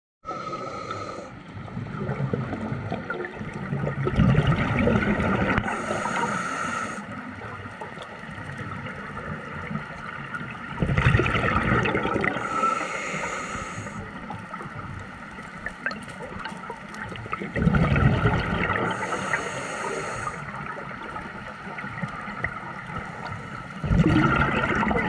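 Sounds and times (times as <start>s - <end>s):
underwater breath bubbling: 0.3s - 1.4s, 3.8s - 7.3s, 10.7s - 14.5s, 17.2s - 25.0s.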